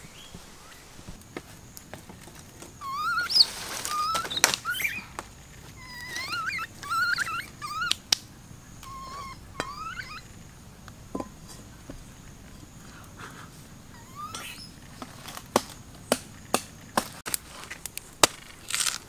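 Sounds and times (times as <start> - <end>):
puppy whining: 2.8 - 5.0, 5.7 - 8.0, 8.8 - 10.3, 13.9 - 14.8.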